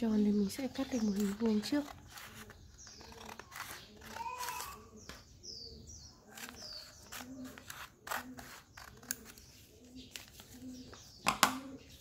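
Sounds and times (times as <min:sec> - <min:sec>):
scissors snipping paper: 0:01.0 - 0:04.8, 0:06.3 - 0:09.5.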